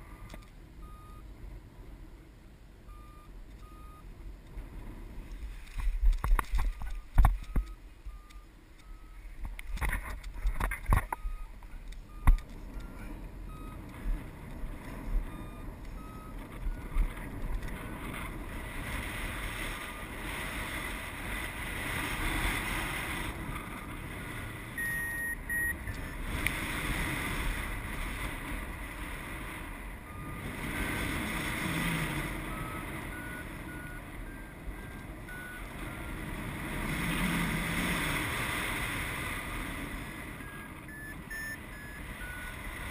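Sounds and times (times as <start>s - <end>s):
variometer beeping: 0.2s - 1.3s, 2.9s - 4.2s, 6.3s - 18.6s, 19.5s - 21.2s, 23.1s - 27.1s, 30.0s - 37.1s, 40.2s - 42.9s.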